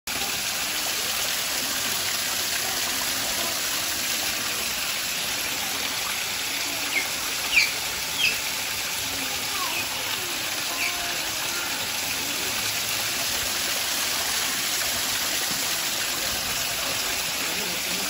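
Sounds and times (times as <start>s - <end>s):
running water: 0.1s - 18.0s
otter chirps: 6.8s - 8.4s.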